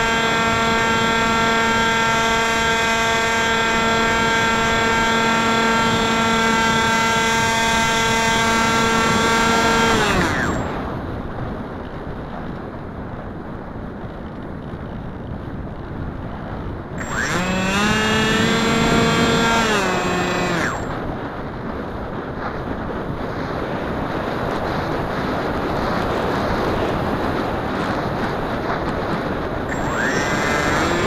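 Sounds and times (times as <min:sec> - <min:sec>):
electric motor propeller whine: 0:00.0 - 0:11.1, 0:17.0 - 0:21.2, 0:29.6 - 0:31.0.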